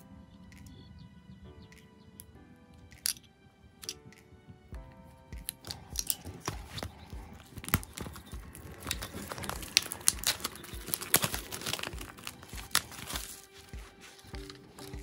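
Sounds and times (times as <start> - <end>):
plastic shrink wrap crinkling: 5.6 - 15.0.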